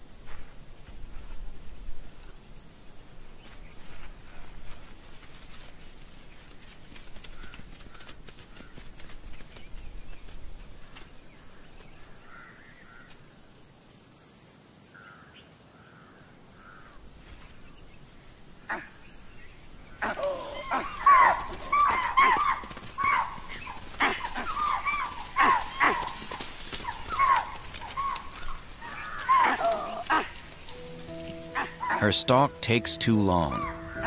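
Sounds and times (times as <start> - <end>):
deer and monkey alarm barks: 20.0 - 30.7, 31.4 - 32.2, 33.4 - 34.0.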